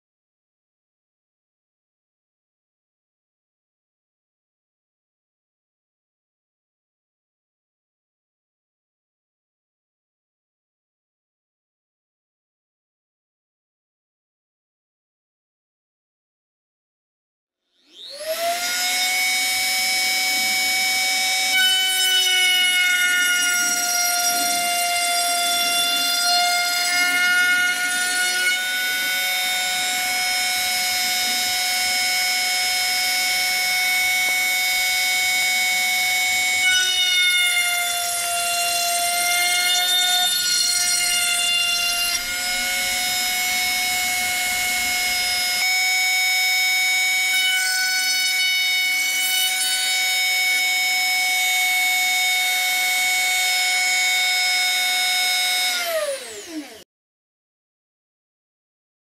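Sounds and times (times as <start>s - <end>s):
router whining: 17.7s - 56.8s.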